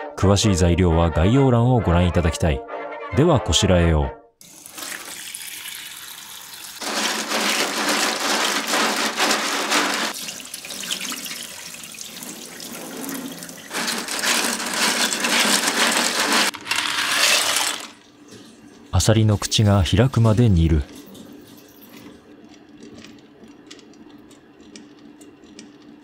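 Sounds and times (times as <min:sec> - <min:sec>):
tap water running into metal bowl: 0:04.4 - 0:13.9
hand rubbing clam shells: 0:06.8 - 0:10.2, 0:13.7 - 0:17.9.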